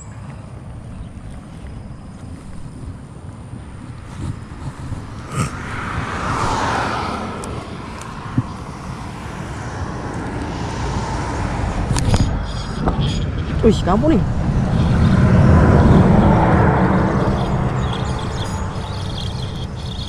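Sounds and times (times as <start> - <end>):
low traffic rumble: 0.0 - 20.0
vehicle passing close by: 3.5 - 20.0.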